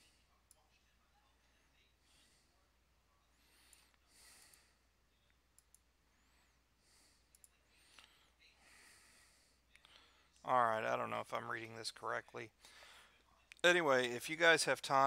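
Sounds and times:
soft breaths: 0.0s - 10.6s, 12.4s - 13.5s
computer mouse clicks: 5.6s - 5.9s, 7.3s - 8.1s.

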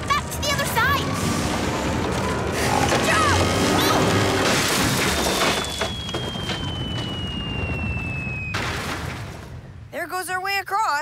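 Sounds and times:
rumbling crash with knocks: 1.2s - 9.8s
long falling whistle: 5.4s - 8.7s.

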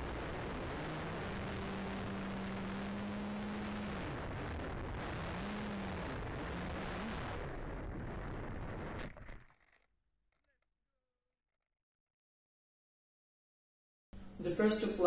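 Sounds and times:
electric motor and propeller humming: 0.0s - 7.5s.

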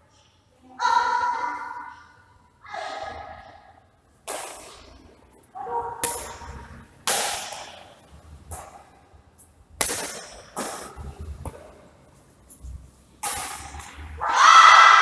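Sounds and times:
rackets hitting shuttlecock: 4.2s - 5.0s, 6.0s - 9.0s, 9.8s - 11.8s, 13.2s - 14.2s.

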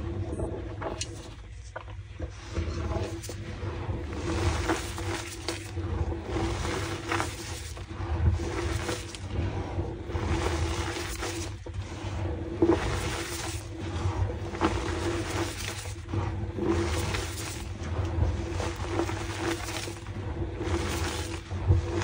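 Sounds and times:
steady low hum: 0.0s - 22.0s
chalk crunching and crumbling: 4.2s - 9.3s, 12.8s - 16.1s, 16.8s - 17.9s, 18.6s - 20.1s.

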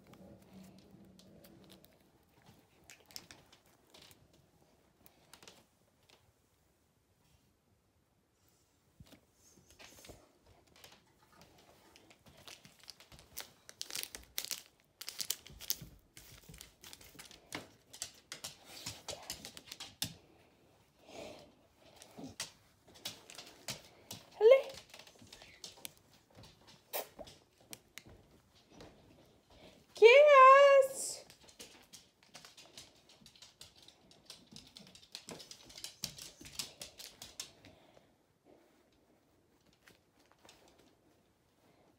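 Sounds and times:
dog claws clicking and tapping: 0.7s - 4.4s, 10.6s - 20.4s, 21.8s - 29.0s, 31.2s - 37.8s
plastic bag crumpling and crackling: 12.0s - 20.0s.

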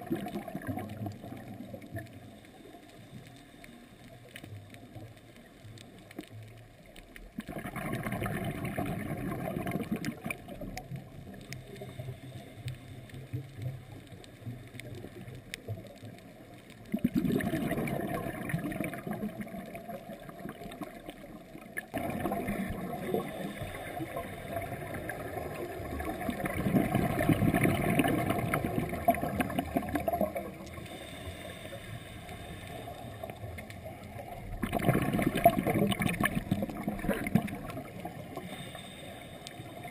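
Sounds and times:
rush of exhaled bubbles: 0.0s - 2.3s, 7.4s - 11.8s, 16.8s - 39.9s
diver breathing through regulator: 30.7s - 33.5s, 38.4s - 39.9s.

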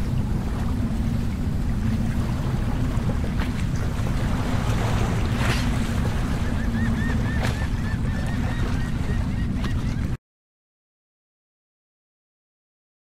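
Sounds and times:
steady low hum: 0.0s - 10.1s
waves washing: 0.0s - 10.2s.

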